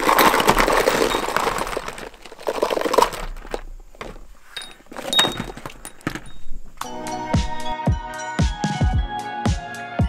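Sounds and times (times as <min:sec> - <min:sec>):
plastic bags crinkling: 0:00.0 - 0:07.0
small tools clattering: 0:00.0 - 0:07.1.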